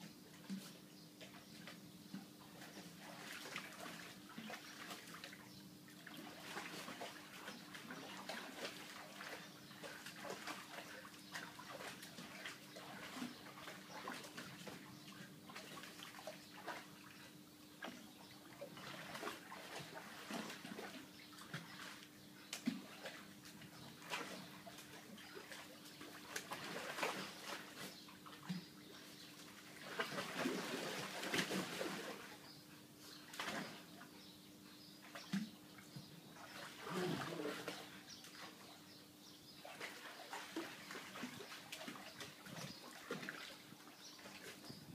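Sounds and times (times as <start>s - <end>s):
water sloshing and splashing: 0.0s - 34.4s, 35.0s - 38.8s, 39.4s - 44.9s
dogs scrambling in water: 6.2s - 17.0s, 17.9s - 32.4s, 36.4s - 38.8s, 39.6s - 44.7s.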